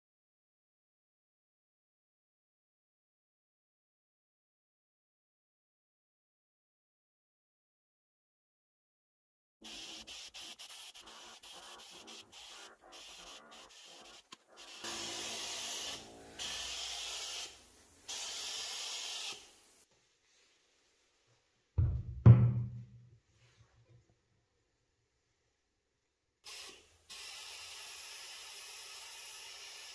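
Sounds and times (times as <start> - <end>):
bursts of steady hiss: 9.6 - 19.9, 26.4 - 29.9
scrubbing strokes: 10.6 - 14.9
heavy low thud: 21.8 - 23.0.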